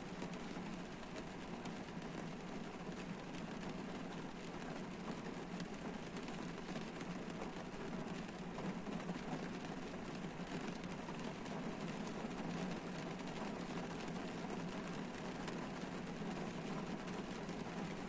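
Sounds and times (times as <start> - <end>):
rain pattering on car roof: 0.0 - 18.0.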